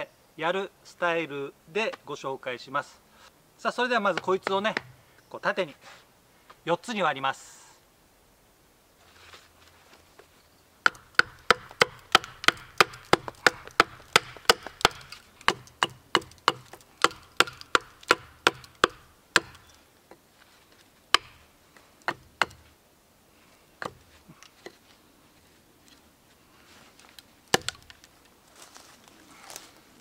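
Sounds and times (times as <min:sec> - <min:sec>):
hatchet knocking into log: 0:10.9 - 0:19.7, 0:21.2 - 0:21.4, 0:23.8 - 0:24.0, 0:27.6 - 0:27.8.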